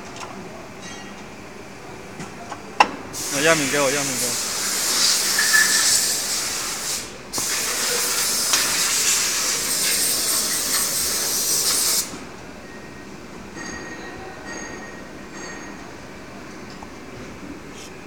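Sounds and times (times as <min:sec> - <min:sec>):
loud steady hiss: 0:03.2 - 0:12.4.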